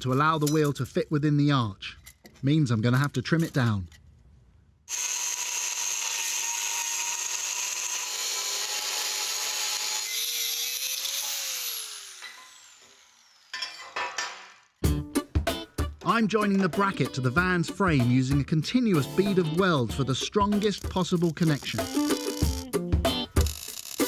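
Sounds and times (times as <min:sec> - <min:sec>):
angle grinder cutting steel: 0:04.9 - 0:13.6, 0:20.6 - 0:22.7, 0:23.3 - 0:24.0.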